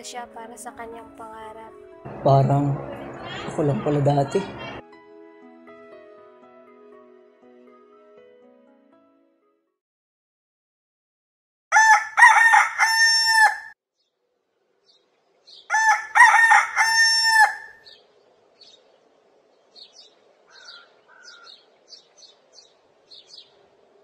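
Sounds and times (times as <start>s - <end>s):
rooster crowing: 11.7s - 13.8s, 15.7s - 18.0s, 20.5s - 21.6s
small birds chirping: 14.8s - 15.9s, 17.7s - 24.0s.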